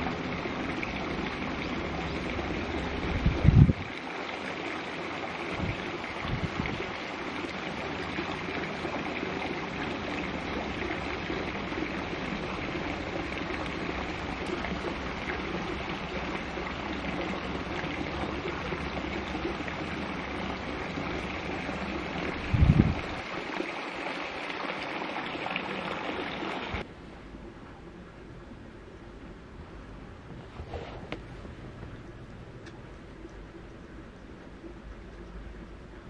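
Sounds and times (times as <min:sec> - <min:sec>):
wind thumps on microphone: 0:03.0 - 0:03.9, 0:05.5 - 0:06.9, 0:22.3 - 0:23.3.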